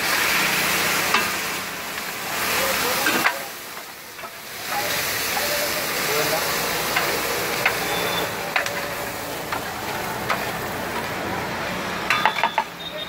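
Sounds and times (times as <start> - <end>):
food sizzling on griddle: 0.0 - 13.0
metal spatula scraping and clacking: 3.0 - 5.1, 6.9 - 11.2, 12.1 - 12.7.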